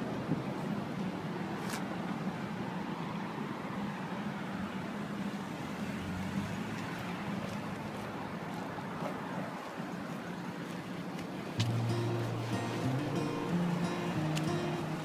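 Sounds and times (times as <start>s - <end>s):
low hum of traffic: 0.0s - 15.0s
car driving slowly past: 5.4s - 15.0s.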